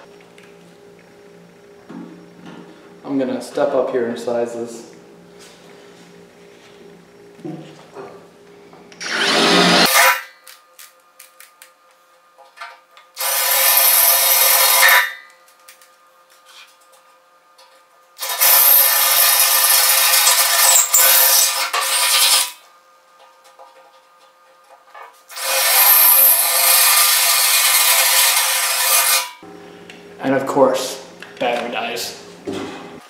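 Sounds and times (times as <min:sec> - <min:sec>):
cordless drill boring into steel: 0:09.0 - 0:10.2, 0:13.2 - 0:15.0, 0:18.2 - 0:22.5, 0:25.3 - 0:29.3.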